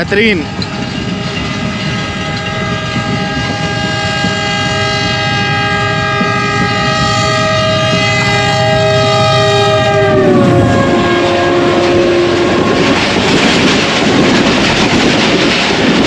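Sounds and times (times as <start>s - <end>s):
passenger coaches rumbling by: 0.0s - 16.0s
locomotive air horn blast: 1.5s - 12.9s.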